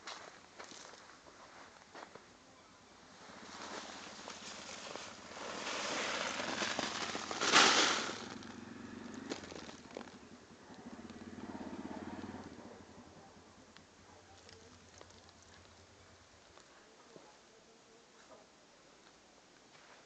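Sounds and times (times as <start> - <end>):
plant rustling and crackling: 3.2 - 10.8, 14.2 - 17.2.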